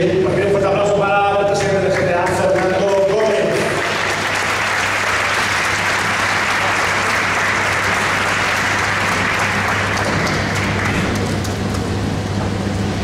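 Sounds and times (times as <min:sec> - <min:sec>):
audience applauding: 0:01.6 - 0:11.8.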